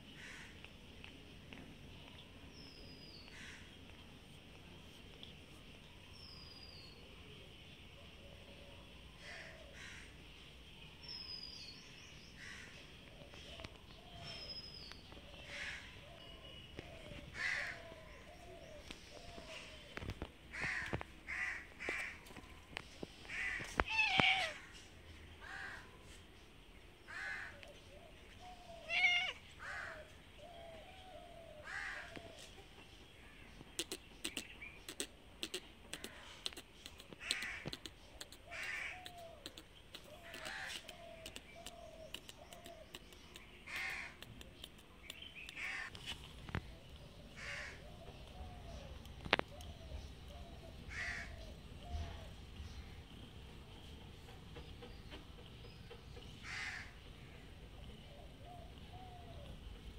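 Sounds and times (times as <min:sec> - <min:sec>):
crows cawing: 0:00.2 - 0:00.5, 0:09.2 - 0:10.1, 0:17.3 - 0:18.0, 0:20.5 - 0:22.3, 0:23.3 - 0:24.7, 0:25.4 - 0:25.9, 0:27.1 - 0:27.6, 0:28.9 - 0:30.0, 0:31.6 - 0:32.2, 0:38.5 - 0:39.1, 0:45.6 - 0:45.9, 0:47.4 - 0:47.8, 0:50.9 - 0:51.4, 0:56.4 - 0:57.0.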